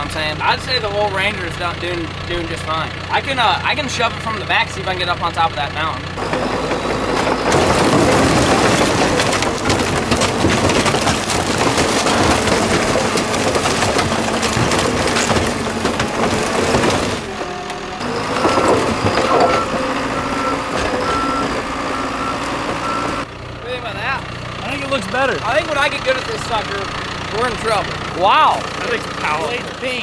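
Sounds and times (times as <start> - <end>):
diesel engine running: 0.0 - 30.0
scrap crunching and crashing: 6.1 - 23.3
reversing alarm beeps: 18.4 - 23.2.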